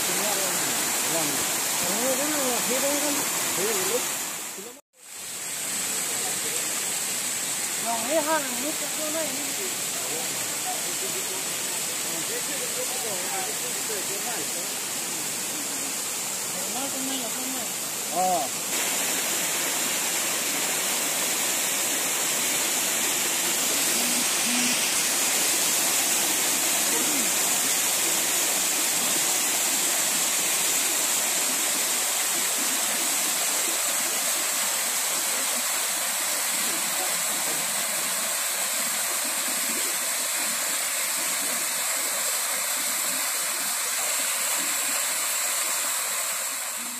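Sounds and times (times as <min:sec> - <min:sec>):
small waterfall splashing: 0:00.0 - 0:46.9.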